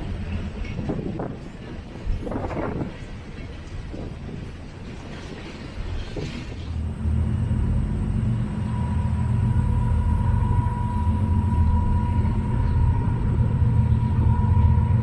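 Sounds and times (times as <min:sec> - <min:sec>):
diesel locomotive engines rumbling: 0:00.0 - 0:15.0
thin steady whine: 0:06.8 - 0:15.0.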